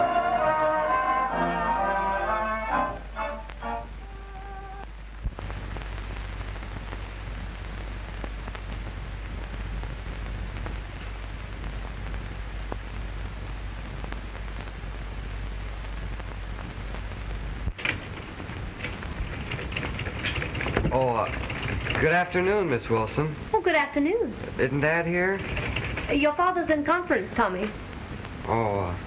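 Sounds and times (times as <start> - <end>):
brass fanfare: 0.0 - 4.6
film soundtrack hiss and crackle: 0.0 - 29.0
low hum: 0.0 - 29.0.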